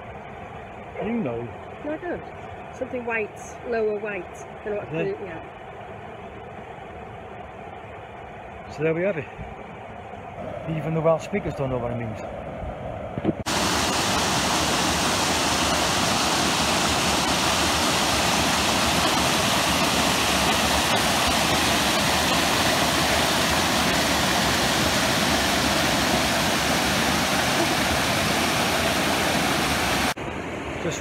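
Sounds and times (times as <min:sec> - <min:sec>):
water rushing over rocks: 0:13.5 - 0:30.2.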